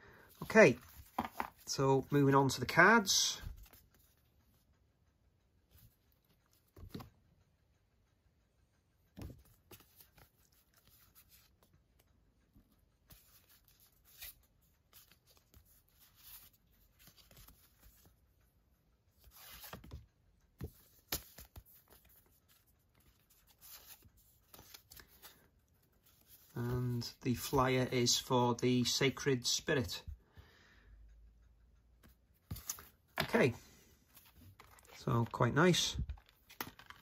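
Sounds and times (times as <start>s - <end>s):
cards rustling and sliding: 0.3s - 2.2s, 9.2s - 11.7s, 13.1s - 18.1s, 19.2s - 20.0s, 20.6s - 27.7s, 32.0s - 37.0s.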